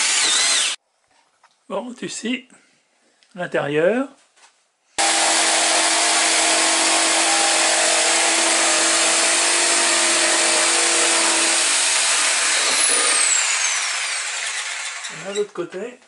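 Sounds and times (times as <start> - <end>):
jigsaw cutting wood: 0.0 - 0.8, 5.0 - 15.4.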